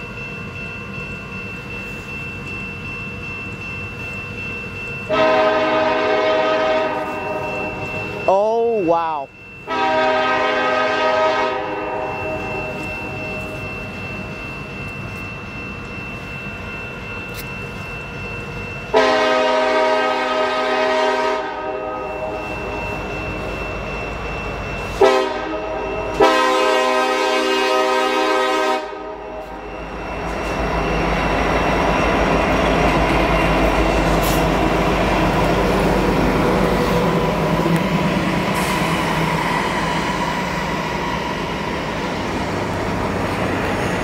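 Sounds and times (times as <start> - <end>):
locomotive engines rumbling: 0.0 - 44.0
locomotive air horn blasts: 5.1 - 7.5, 9.7 - 12.4, 18.9 - 22.3, 25.0 - 29.2.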